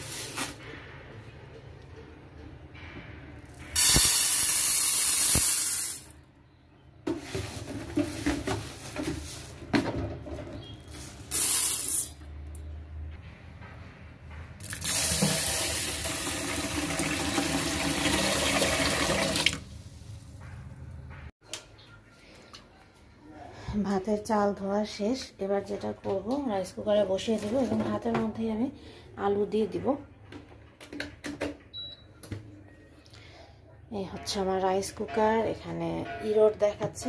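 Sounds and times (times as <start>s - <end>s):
tap water running: 14.6s - 19.7s.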